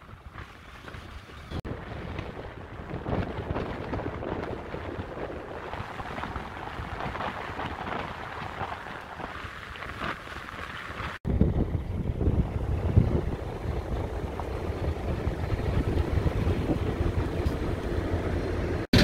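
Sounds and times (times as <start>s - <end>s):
rushing wind: 0.0s - 19.0s
tyre noise on road: 0.0s - 19.0s
loud low rumble: 11.2s - 19.0s.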